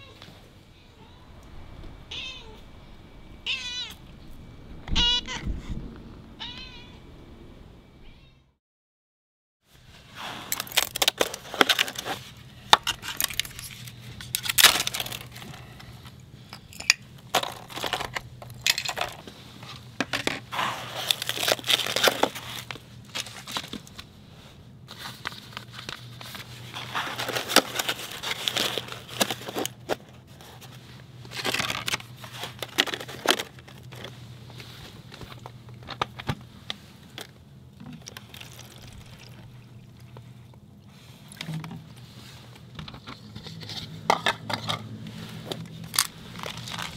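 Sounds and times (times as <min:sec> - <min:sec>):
faint low hum: 0:00.0 - 0:08.6
plastic crinkling: 0:10.5 - 0:16.0, 0:20.6 - 0:24.1, 0:24.9 - 0:43.9, 0:45.3 - 0:46.9.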